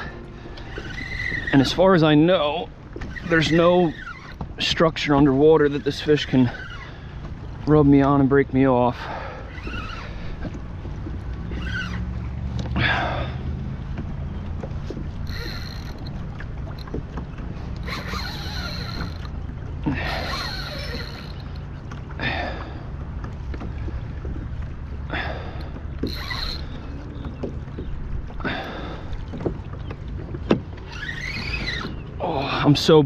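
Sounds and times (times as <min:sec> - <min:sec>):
fishing reel drag rushes: 0:00.0 - 0:01.8, 0:09.4 - 0:10.3, 0:11.5 - 0:12.1, 0:15.2 - 0:16.9, 0:17.8 - 0:21.6, 0:26.0 - 0:26.8, 0:30.9 - 0:32.0.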